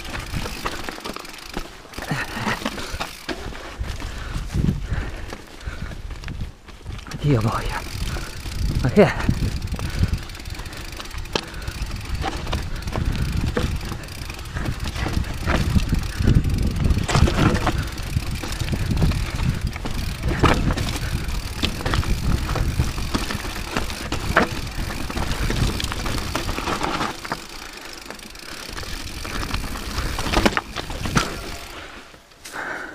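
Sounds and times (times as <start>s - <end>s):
bike clattering on rocks: 0.0s - 4.1s, 6.9s - 31.8s
tyres rumbling over stones: 6.9s - 31.8s.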